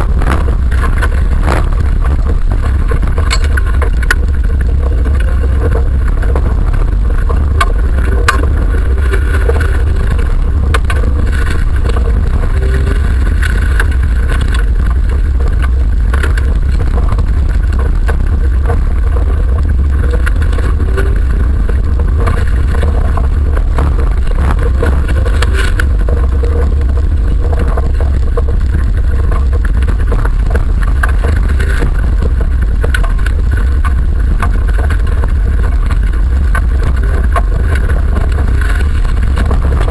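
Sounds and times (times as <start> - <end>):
car engine rumbling under load: 0.0 - 39.9
road noise: 0.0 - 39.9
clicks and knocks: 0.2 - 6.5.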